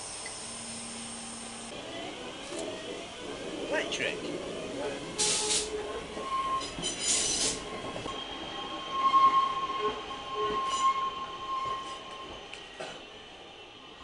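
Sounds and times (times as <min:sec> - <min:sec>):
high-pitched mechanical whine: 0:00.0 - 0:03.3.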